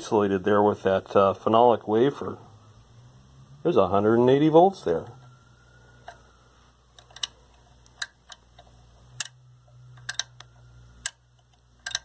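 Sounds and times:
radio speaker mains hum: 0.0 - 12.0
sharp irregular clicks: 10.0 - 12.0.

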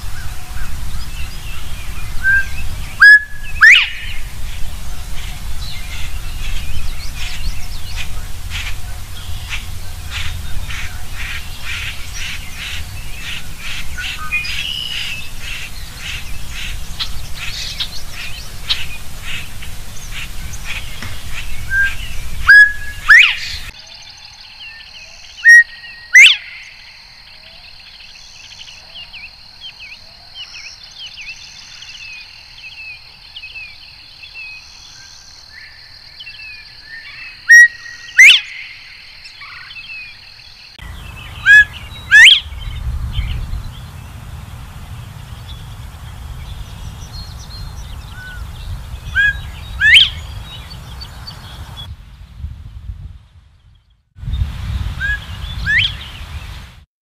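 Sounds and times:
birds chirping: 0.0 - 52.3
bird whistling upward call: 2.0 - 4.3, 21.0 - 26.9, 36.8 - 40.1, 40.8 - 43.9, 49.0 - 51.9, 55.0 - 56.2
low rumble: 40.8 - 54.8.

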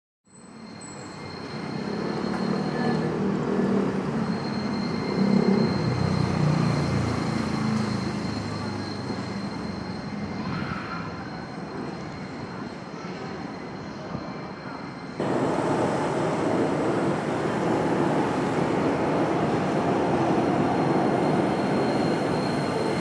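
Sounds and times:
high wheel squeal: 0.3 - 23.0
tram rolling rumble: 0.6 - 23.0.

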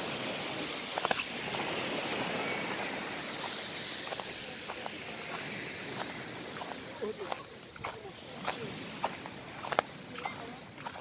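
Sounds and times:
surf rushing on sandy beach: 0.0 - 11.0
faint footsteps on sand: 0.2 - 11.0.

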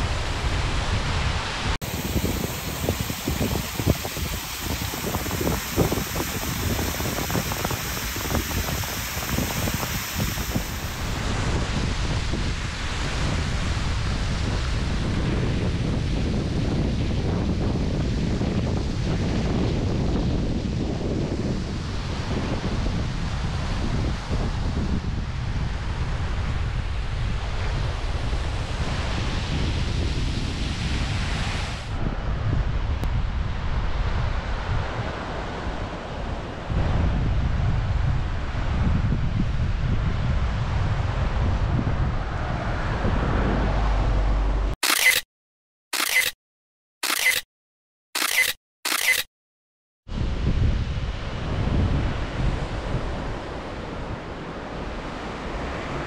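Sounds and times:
steady rushing noise: 0.0 - 23.3, 24.2 - 45.2
wind buffeting microphone: 0.0 - 44.8, 50.1 - 56.0.

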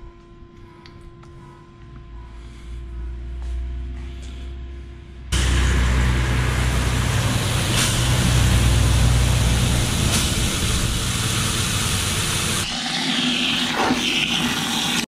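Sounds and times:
low rumble: 1.9 - 12.6
hose water filling plastic bucket: 12.2 - 15.0.

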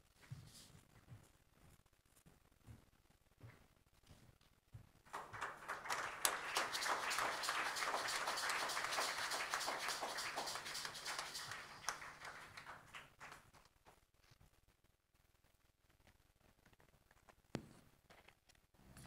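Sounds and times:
crowd applauding: 5.1 - 13.7.

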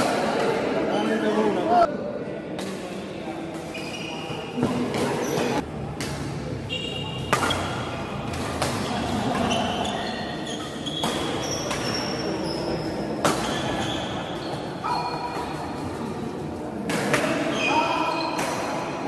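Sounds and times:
shoes squeaking on court floor: 3.6 - 5.6, 6.7 - 16.4, 17.3 - 18.7
racket hitting shuttlecock: 4.6 - 10.0, 10.6 - 12.2, 13.1 - 16.0, 16.8 - 19.0.

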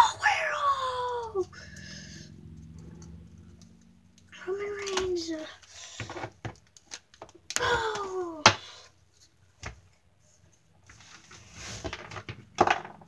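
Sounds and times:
plastic figures clacking: 2.5 - 8.7
rustling handling noise: 9.1 - 12.6.

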